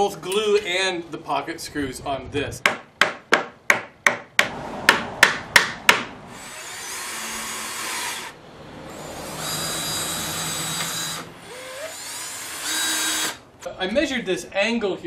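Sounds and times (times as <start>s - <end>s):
hammer tapping on wood: 2.6s - 6.1s
cordless drill driving screws: 6.3s - 13.4s.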